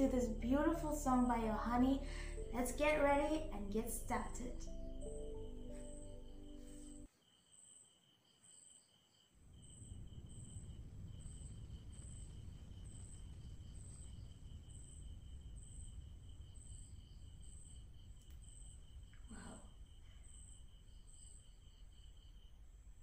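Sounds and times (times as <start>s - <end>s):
low rumble: 0.0s - 7.1s, 9.6s - 21.0s
steady high trill: 0.0s - 7.1s
crickets chirping: 0.0s - 23.0s.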